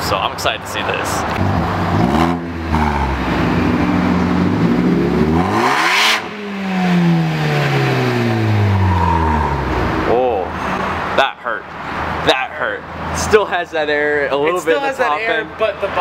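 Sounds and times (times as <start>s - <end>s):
car engine revving: 1.2s - 11.2s.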